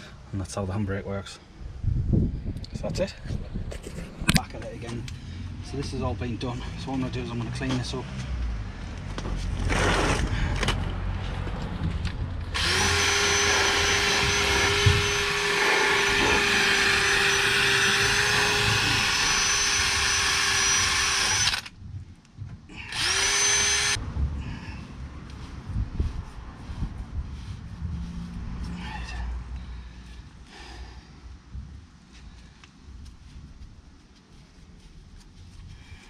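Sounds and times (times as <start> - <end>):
drill motor whine: 12.6 - 21.7, 22.7 - 24.0.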